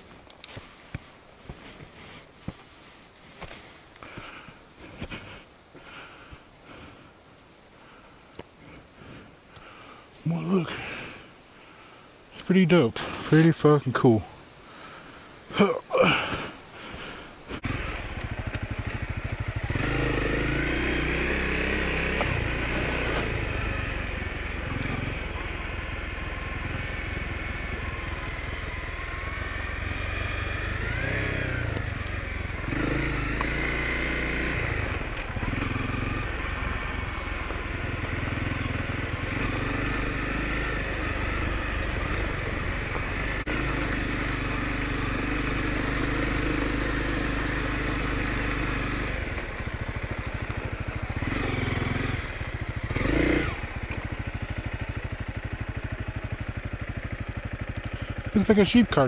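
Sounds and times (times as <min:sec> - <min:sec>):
motorcycle engine rev: 0:17.5 - 0:59.0
motorcycle engine running: 0:17.5 - 0:59.0.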